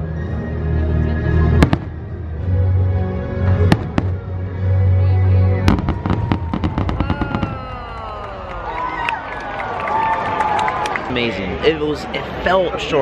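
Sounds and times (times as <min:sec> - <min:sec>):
fireworks bangs: 0:01.6 - 0:02.0, 0:03.6 - 0:04.2, 0:05.7 - 0:08.9
fireworks crackling pops: 0:03.7 - 0:04.2, 0:05.7 - 0:07.7.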